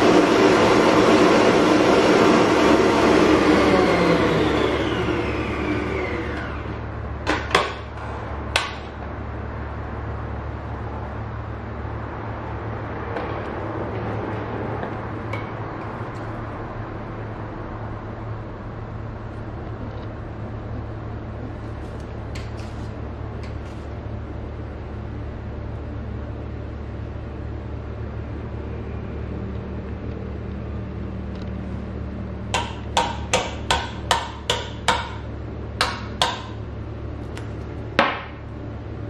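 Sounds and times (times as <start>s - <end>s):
stand mixer motor whine: 0.0s - 7.0s.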